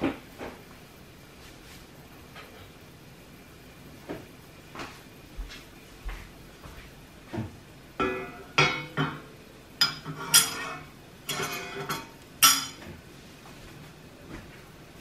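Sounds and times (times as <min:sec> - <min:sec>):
spoon and plate clinking: 0:09.8 - 0:12.8.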